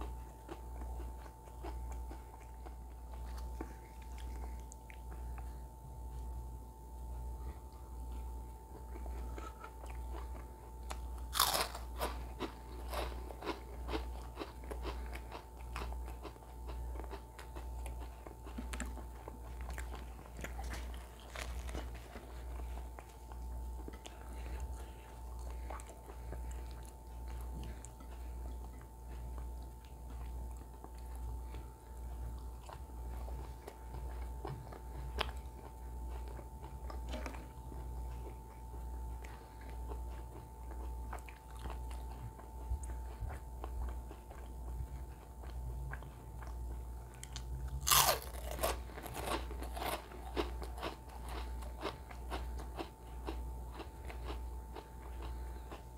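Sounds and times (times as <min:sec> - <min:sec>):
close chewing: 0:00.0 - 0:55.9
low pulsing hum: 0:00.0 - 0:55.9
crisp crunches: 0:11.2 - 0:15.0, 0:47.3 - 0:51.9.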